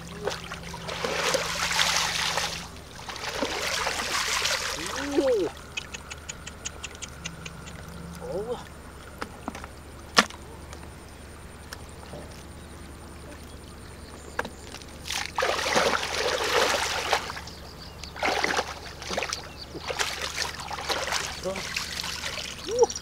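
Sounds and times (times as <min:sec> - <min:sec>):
muddy water sloshing and splashing: 0:00.0 - 0:09.4, 0:14.4 - 0:23.0.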